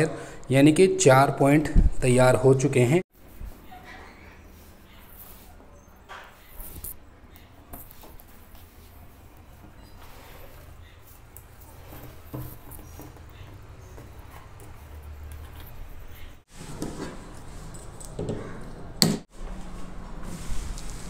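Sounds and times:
wires rustling and clicking: 0:06.2 - 0:18.9.

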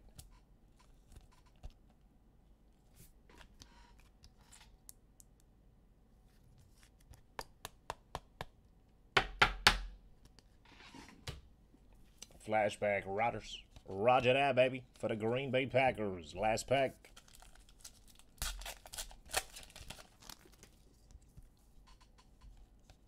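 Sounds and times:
plastic packaging crinkle: 0:17.0 - 0:21.1.

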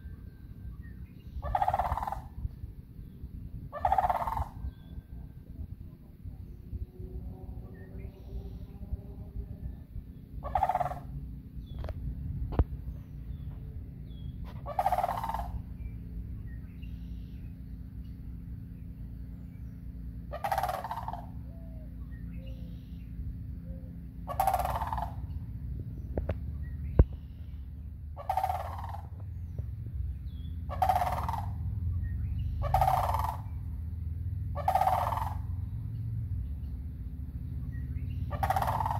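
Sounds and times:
cranes calling: 0:00.0 - 0:38.9.

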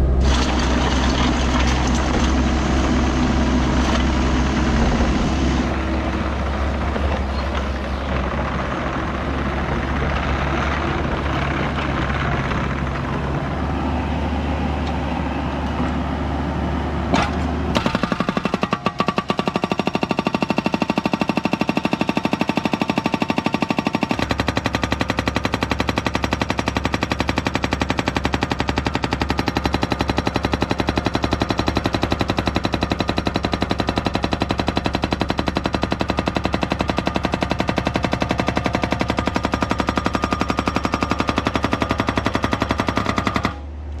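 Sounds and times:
hydraulic breaker hammer pounding: 0:17.2 - 0:43.6.

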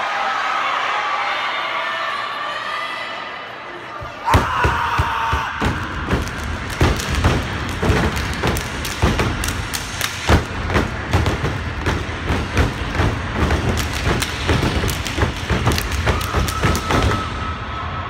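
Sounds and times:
body slaps: 0:05.6 - 0:17.2
hand claps: 0:06.1 - 0:17.2.

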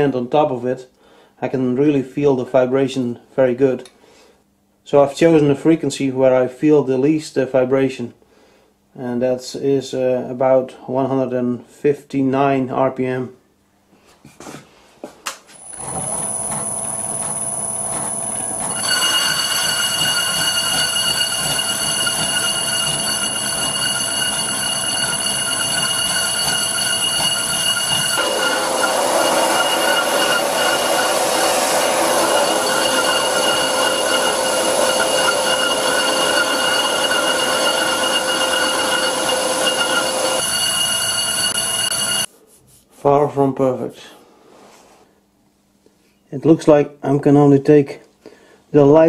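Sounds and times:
lathe motor high whine: 0:15.6 - 0:42.3
rough squealing tool chatter: 0:15.6 - 0:42.3.

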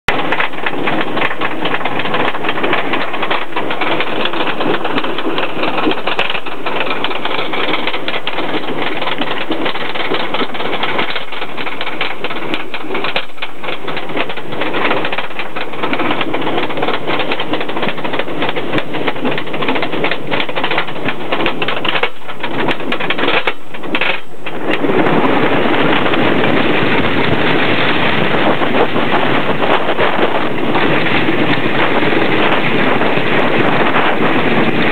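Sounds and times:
roller coaster lift chain clatter: 0:00.1 - 0:34.9
wind rushing on microphone: 0:00.1 - 0:34.9.

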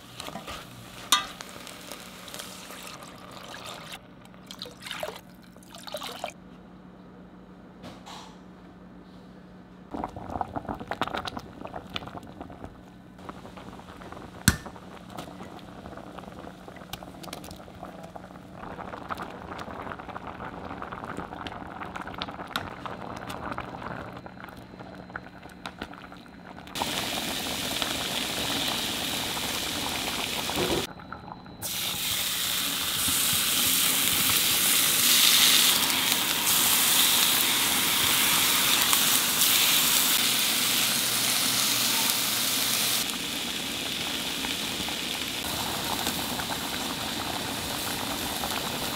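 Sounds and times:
meat sizzling in frying pan: 0:01.0 - 0:03.0, 0:26.8 - 0:30.9, 0:31.6 - 0:48.9
stew bubbling in pot: 0:09.9 - 0:40.2.

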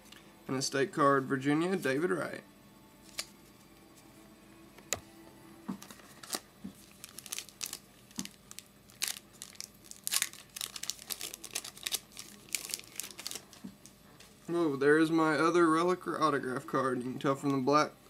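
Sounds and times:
wrapper crinkling and tearing: 0:05.8 - 0:14.0.

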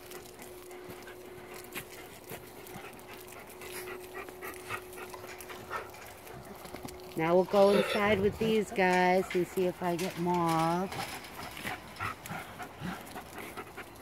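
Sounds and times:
wolf panting: 0:00.0 - 0:07.7, 0:10.9 - 0:14.0.

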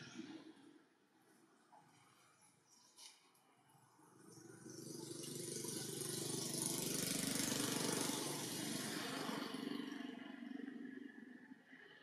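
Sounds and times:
vehicle engine passing: 0:04.4 - 0:10.6.

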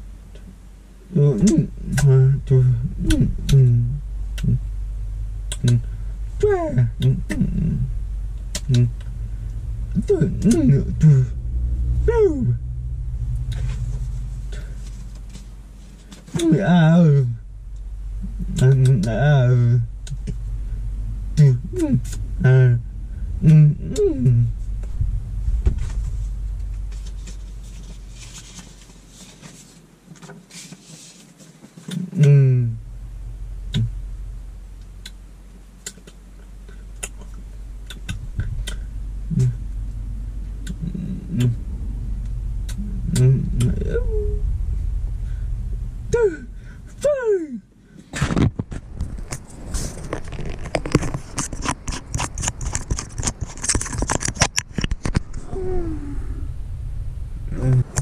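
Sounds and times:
low hum: 0:00.0 - 0:31.2, 0:31.9 - 0:58.0
paper rustling: 0:26.9 - 0:31.8.

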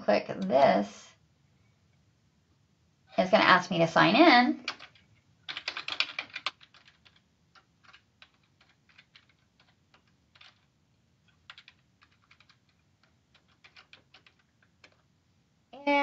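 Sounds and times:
faint keyboard typing: 0:04.6 - 0:15.2.

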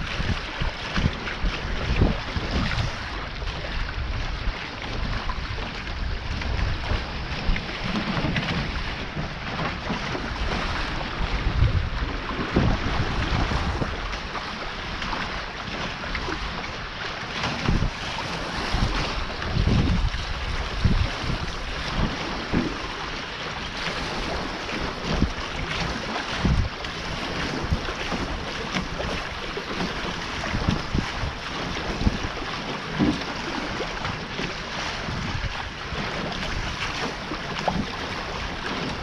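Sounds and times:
water rushing past hulls: 0:00.0 - 0:39.0
wind buffeting microphone: 0:00.0 - 0:39.0.

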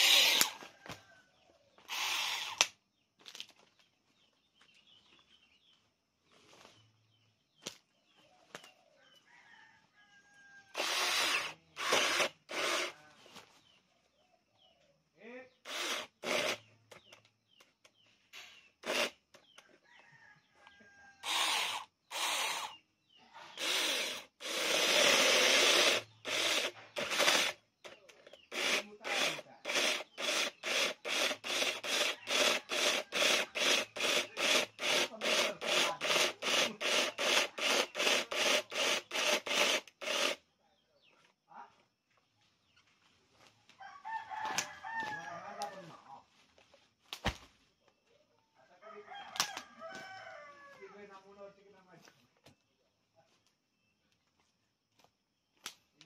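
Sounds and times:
chainsaw cutting into a log: 0:00.0 - 0:00.7, 0:10.8 - 0:13.0, 0:15.7 - 0:16.7, 0:18.8 - 0:19.2, 0:21.2 - 0:22.8, 0:23.5 - 0:40.4
rooster crowing: 0:09.0 - 0:10.8, 0:43.8 - 0:46.0, 0:48.7 - 0:51.0.

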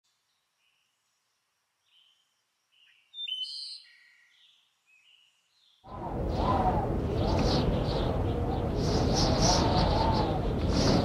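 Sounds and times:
birds chirping: 0:00.3 - 0:10.8
low rumble of thunder: 0:05.9 - 0:11.0.

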